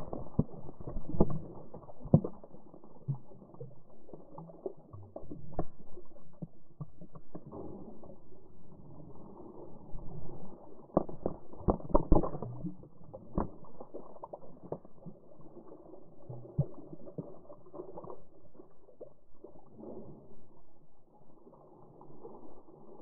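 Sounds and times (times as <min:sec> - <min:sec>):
feet splashing water: 0:00.0 - 0:23.0.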